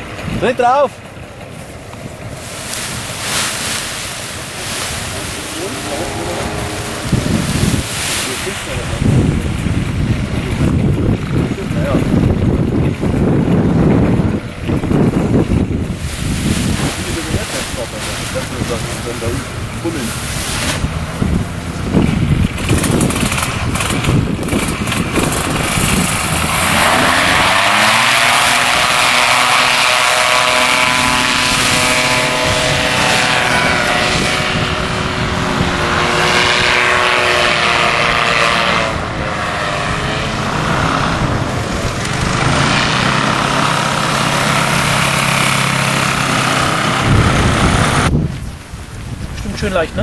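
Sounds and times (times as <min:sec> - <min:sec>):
paramotor engine and propeller: 0:00.0 - 0:50.0.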